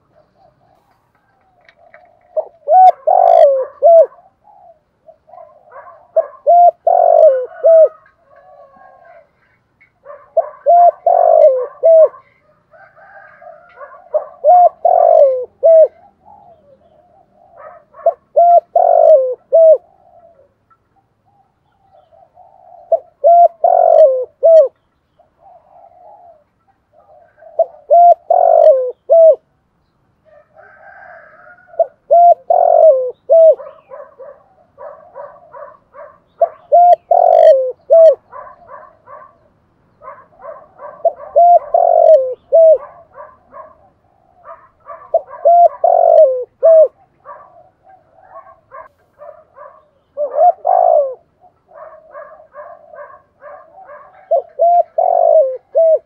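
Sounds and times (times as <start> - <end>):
dove cooing: 0.0 - 29.6, 30.2 - 56.0
other birds chirping: 0.0 - 56.0.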